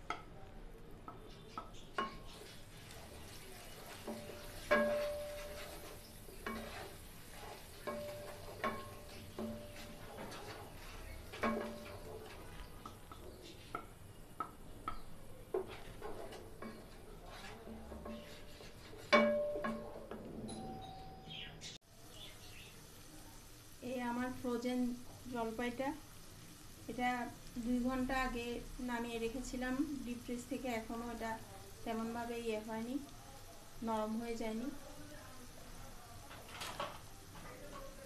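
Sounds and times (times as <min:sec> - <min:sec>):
faint oil sizzle: 0:00.0 - 0:20.2, 0:21.8 - 0:38.0
spatula scraping metal pan: 0:02.0 - 0:13.9, 0:14.9 - 0:20.0.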